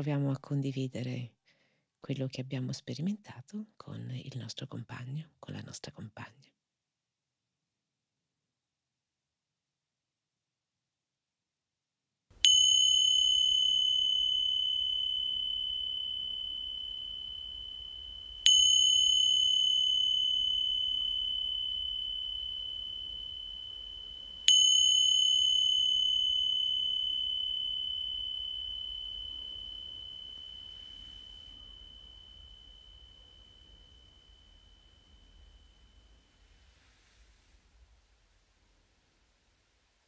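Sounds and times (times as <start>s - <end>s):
meditation bell ringing: 12.4s - 37.4s.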